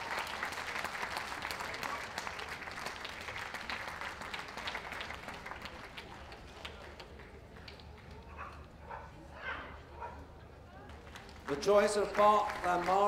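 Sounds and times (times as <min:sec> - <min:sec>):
audience applauding: 0:00.0 - 0:08.1, 0:11.1 - 0:13.0.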